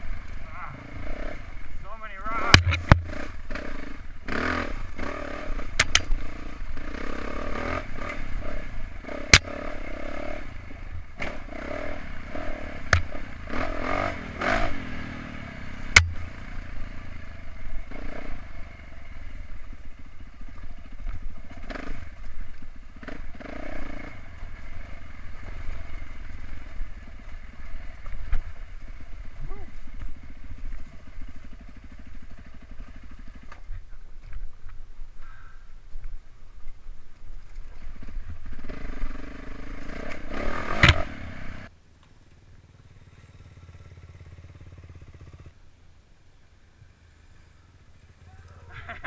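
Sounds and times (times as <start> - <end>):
dirt bike engine revving: 0.0 - 33.9, 37.7 - 41.7.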